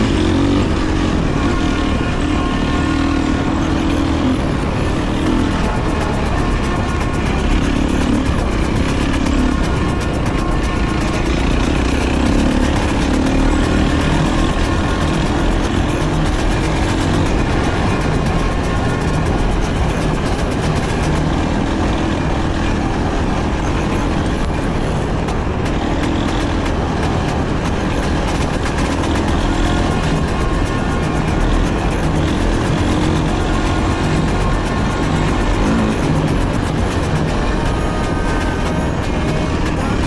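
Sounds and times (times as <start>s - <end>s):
dirt bike engine running: 0.0s - 40.0s.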